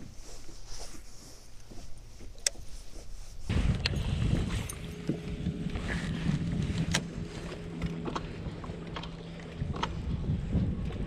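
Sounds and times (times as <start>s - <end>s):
wind on microphone: 3.4s - 11.0s.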